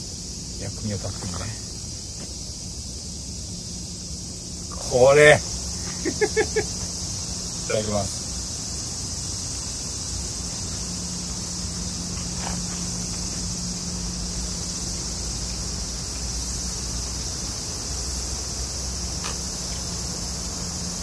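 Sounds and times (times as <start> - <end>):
insects shrilling: 0.0 - 21.0.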